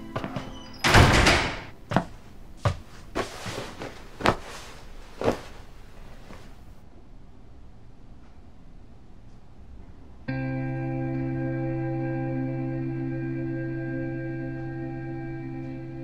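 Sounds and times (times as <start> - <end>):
loud rustling swish: 2.8 - 6.8.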